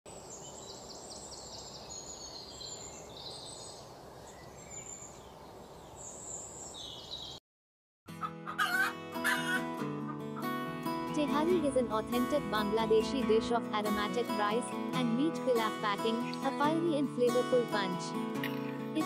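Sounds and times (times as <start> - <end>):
small birds chirping: 0.1 - 7.4.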